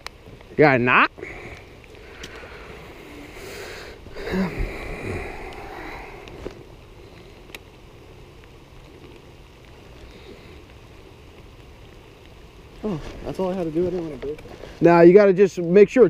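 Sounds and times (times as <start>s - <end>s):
light rain hissing: 0.0s - 16.0s
faint clicks: 1.5s - 2.8s, 5.2s - 12.8s.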